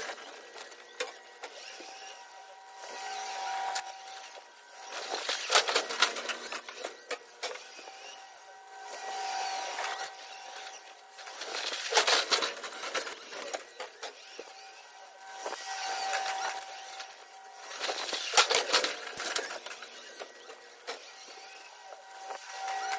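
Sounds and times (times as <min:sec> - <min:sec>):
forklift warning alarm beeps: 0:00.0 - 0:02.7, 0:03.6 - 0:04.6, 0:06.4 - 0:08.8, 0:09.8 - 0:11.0, 0:12.9 - 0:15.2, 0:16.3 - 0:17.4, 0:19.2 - 0:22.1.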